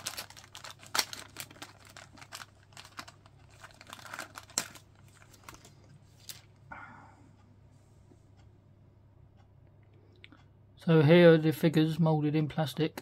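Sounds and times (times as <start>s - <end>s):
plastic bag crinkling: 0.0s - 6.5s.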